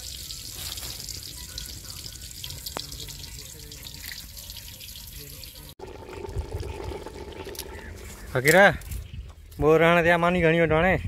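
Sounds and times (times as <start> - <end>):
cooking pot hissing and crackling: 0.0 - 3.2.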